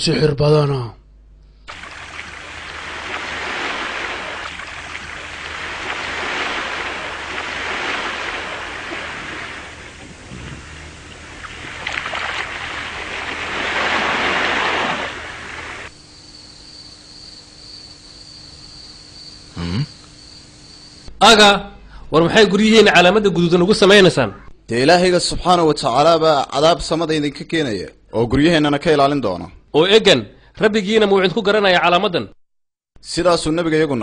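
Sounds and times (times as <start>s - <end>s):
rushing wind-like noise: 1.7s - 15.9s
high-pitched insect-like tone: 15.9s - 21.1s.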